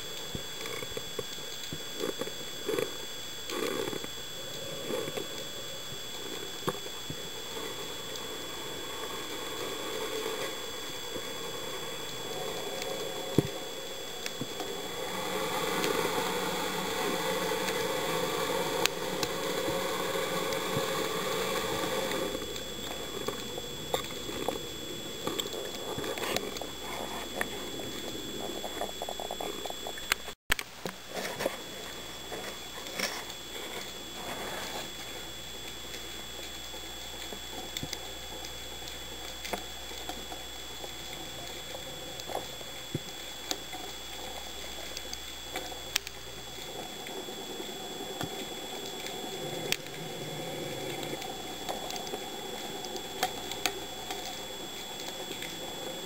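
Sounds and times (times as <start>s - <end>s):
faint high whine: 0.0s - 56.0s
sharp clicks and crackling: 0.0s - 56.0s
underwater hiss: 3.5s - 28.5s
rushing noise: 7.5s - 28.6s.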